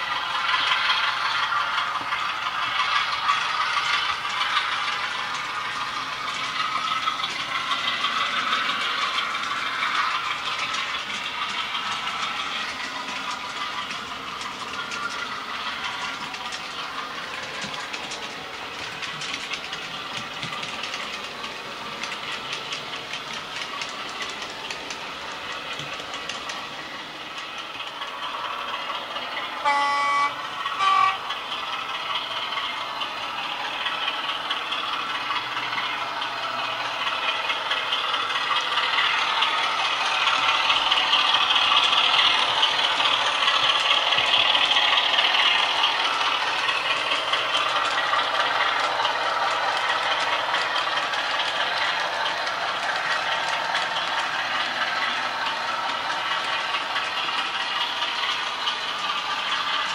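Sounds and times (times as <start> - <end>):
diesel engine sound from speaker: 0.0 - 59.9
model train wheels clicking on track: 0.0 - 59.9
short horn blasts: 29.6 - 31.2.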